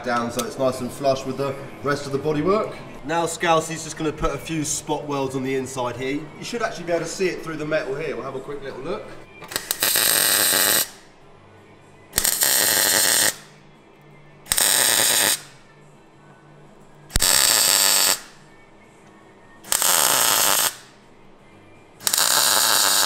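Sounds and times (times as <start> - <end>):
welding arc crackle: 9.5 - 11.0, 12.2 - 13.5, 14.5 - 15.5, 17.1 - 18.3, 19.7 - 20.9, 22.0 - 23.0.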